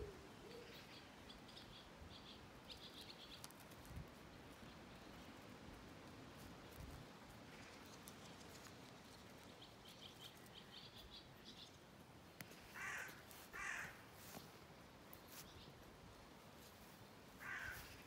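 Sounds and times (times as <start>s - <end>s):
small bird chirping: 0.5s - 3.8s, 7.5s - 13.1s
crow cawing: 12.7s - 14.0s, 17.4s - 18.0s.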